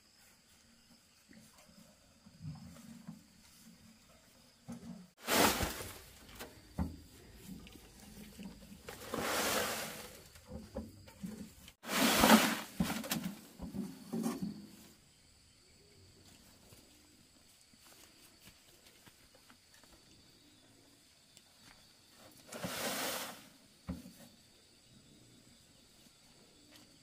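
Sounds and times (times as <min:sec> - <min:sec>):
wheelbarrow knocks and scrapes: 0:04.7 - 0:14.9, 0:22.2 - 0:24.4
soil pouring from wheelbarrow: 0:05.2 - 0:06.7, 0:07.4 - 0:10.4, 0:11.8 - 0:13.4, 0:22.4 - 0:23.6.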